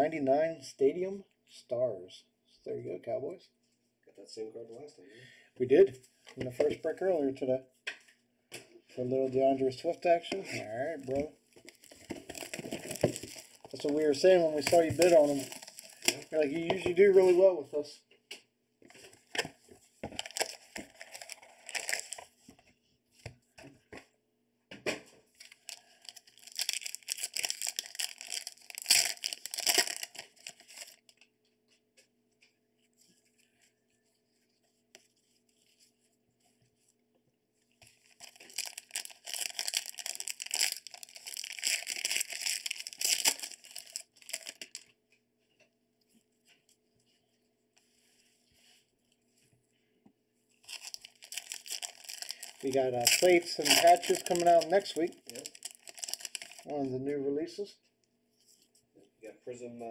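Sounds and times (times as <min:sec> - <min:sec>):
packaging crinkling and tearing: 0:11.0 - 0:17.3, 0:20.1 - 0:22.4, 0:25.4 - 0:31.2, 0:37.8 - 0:45.0, 0:50.6 - 0:56.7.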